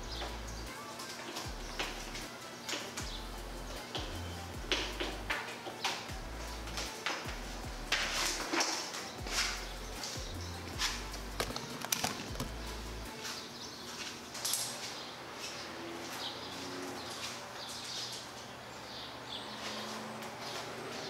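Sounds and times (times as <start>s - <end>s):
birds chirping: 0.0s - 21.0s
cord rustling: 6.3s - 15.6s.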